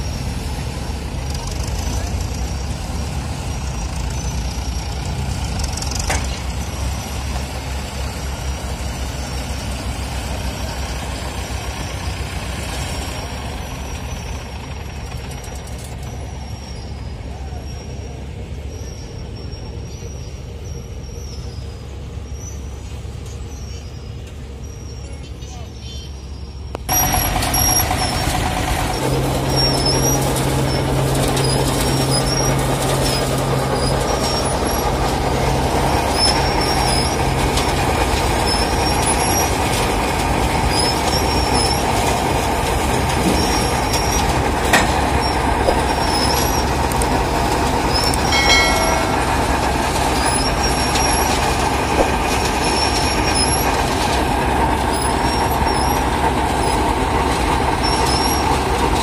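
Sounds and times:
short high squeaks: 23.5s - 57.0s, 57.7s - 59.0s
low motor hum: 26.8s - 59.0s
rotating drum rumbling and grinding: 26.9s - 59.0s.

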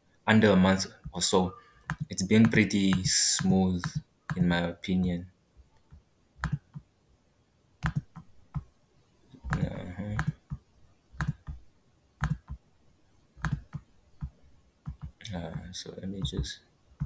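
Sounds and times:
computer mouse clicking: 1.8s - 3.1s, 5.8s - 6.8s, 7.8s - 8.6s, 9.4s - 10.6s, 11.2s - 11.6s, 12.2s - 12.6s, 13.4s - 15.2s.

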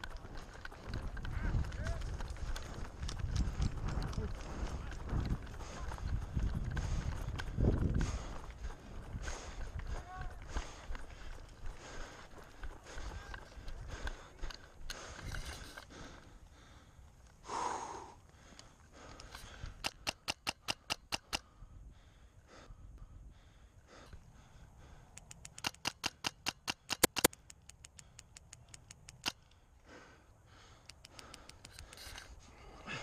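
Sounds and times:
airsoft rifle shots: 25.6s - 27.3s.

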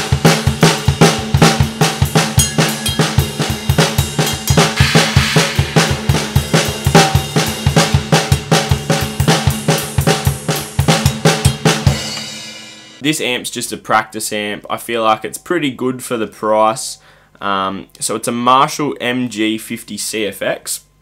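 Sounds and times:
drum kit groove: 0.0s - 13.2s
cymbal wash: 1.8s - 8.3s.

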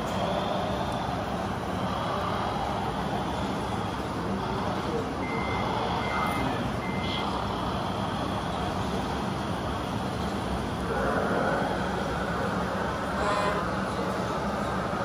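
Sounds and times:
rushing background noise: 0.0s - 15.0s
reversing beeper beeps: 5.2s - 7.4s.

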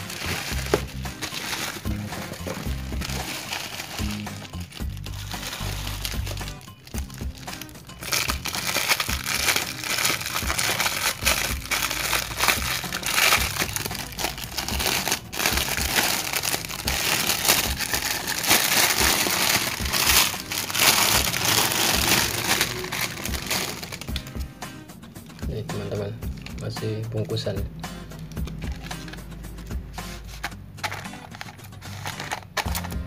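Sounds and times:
plastic wrapping crinkling: 0.0s - 24.5s, 28.3s - 29.2s, 30.3s - 33.0s.

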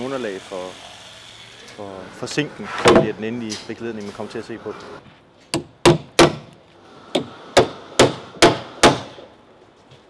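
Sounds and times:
hammer striking timber: 2.8s - 3.2s, 5.5s - 9.2s.

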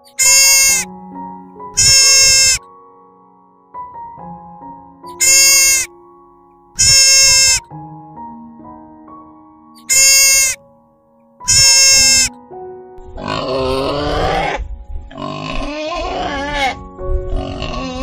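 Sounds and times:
animal high-pitched calls: 0.0s - 0.9s, 1.8s - 2.6s, 5.1s - 5.9s, 6.8s - 7.6s, 9.8s - 10.6s, 11.5s - 12.3s
background music with held notes: 0.0s - 18.0s
wild boar grunting: 17.4s - 18.0s.

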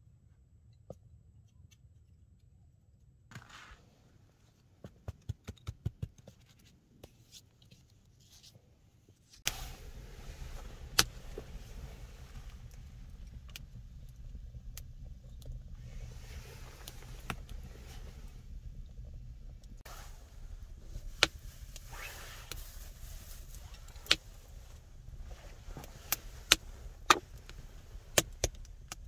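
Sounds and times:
snow crunching packed by hand: 3.3s - 3.8s, 19.8s - 28.2s
wood fire crackling: 9.4s - 29.0s.

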